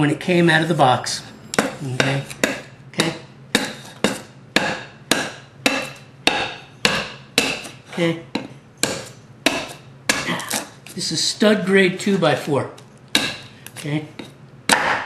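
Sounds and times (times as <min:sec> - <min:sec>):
knife chopping into wood: 0:01.6 - 0:10.8, 0:13.1 - 0:15.0.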